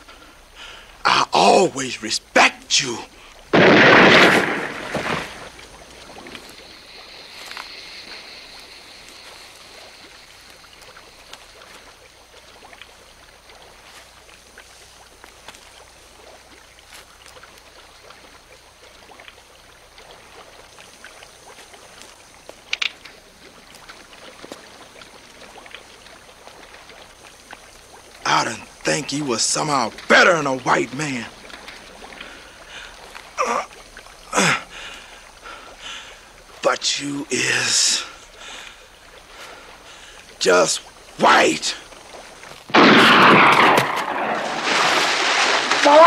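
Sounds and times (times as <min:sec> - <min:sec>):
faint steady hiss: 0:00.0 - 0:46.0
small crackles: 0:03.1 - 0:36.6, 0:41.8 - 0:46.0
loud gunshot: 0:03.5 - 0:05.4, 0:42.7 - 0:46.0
short sharp crack: 0:03.6 - 0:05.5, 0:42.7 - 0:46.0.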